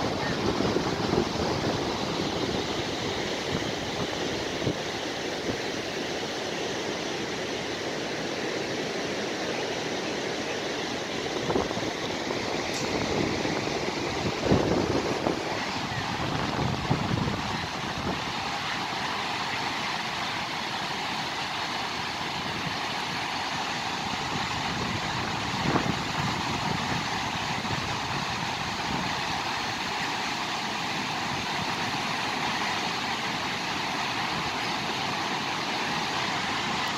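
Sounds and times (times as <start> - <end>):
waterfall roaring: 0.0 - 36.9.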